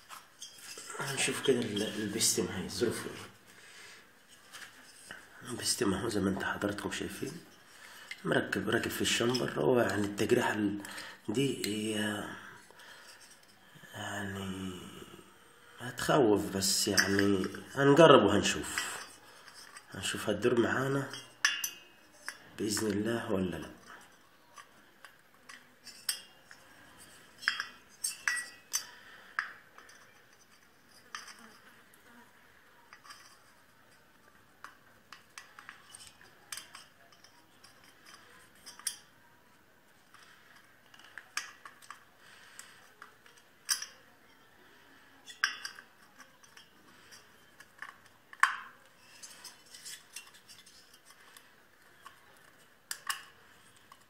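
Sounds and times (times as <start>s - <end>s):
metal parts and tools clinking: 0.0s - 3.0s, 16.7s - 17.6s, 18.3s - 23.0s, 23.8s - 31.9s, 34.6s - 39.2s, 40.1s - 44.1s, 44.7s - 54.0s.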